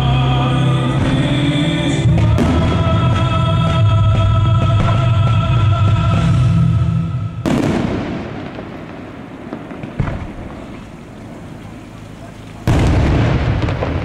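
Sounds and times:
show music: 0.0s - 7.7s
fireworks crackling and popping: 2.0s - 6.3s, 7.4s - 14.0s
sharp firework report: 7.4s - 14.0s.

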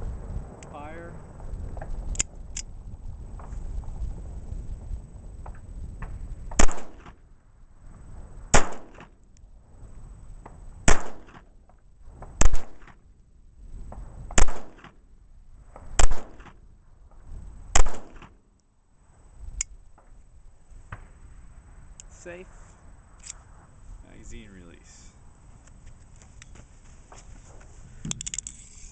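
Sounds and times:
pistol gunshots: 6.6s - 7.1s, 8.5s - 9.1s, 10.9s - 11.4s, 12.4s - 13.0s, 14.4s - 15.0s, 16.0s - 16.6s, 17.8s - 18.3s.

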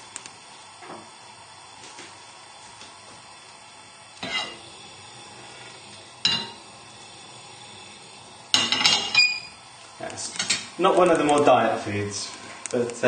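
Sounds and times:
butter sizzling in a pan: 0.0s - 13.0s
metallic kitchenware clanks: 6.2s - 6.6s
pans and utensils clattering: 6.2s - 6.6s, 8.6s - 9.4s, 10.2s - 10.7s.

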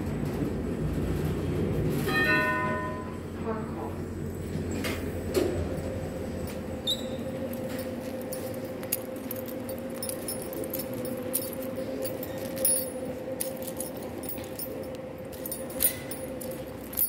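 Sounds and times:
two-tone mechanical hum: 0.0s - 17.0s
light clicking and jingling: 7.4s - 17.0s.

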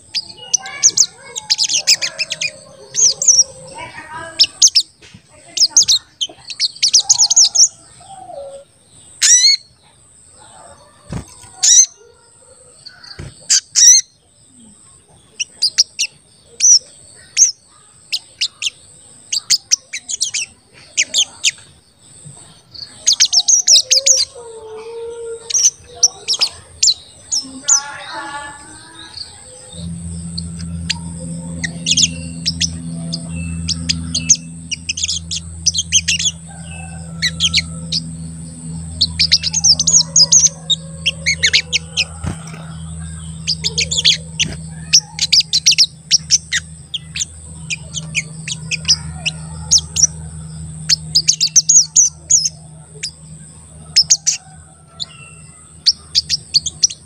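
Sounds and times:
low steady hum: 0.0s - 11.9s, 12.7s - 57.0s
sunbird chirping: 0.0s - 57.0s
faint high whine: 12.9s - 57.0s.

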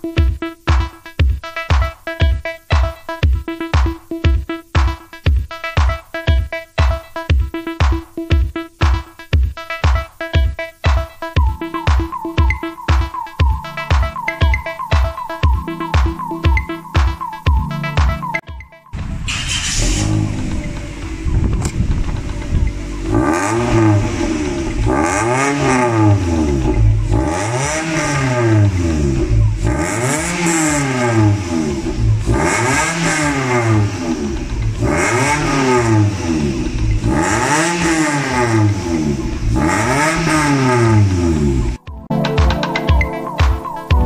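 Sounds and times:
car engine revving: 18.9s - 41.8s.

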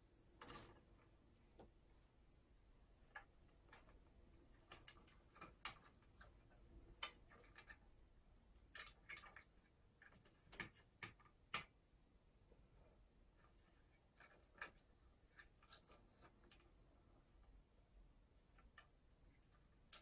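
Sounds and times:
parrots clicking and tapping on wood: 4.6s - 7.9s, 8.6s - 11.8s, 13.6s - 16.7s.

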